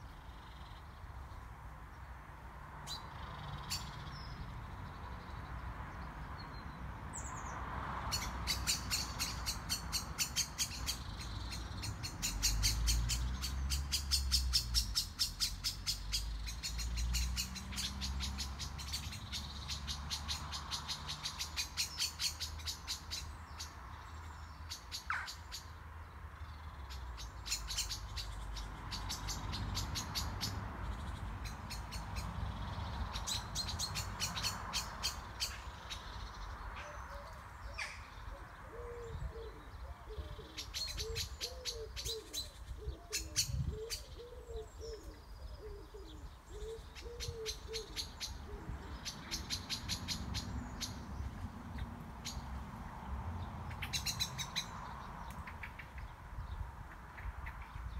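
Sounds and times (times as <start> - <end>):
birds trilling and chirping: 2.8 - 57.9
low cooing bird call: 36.8 - 49.7.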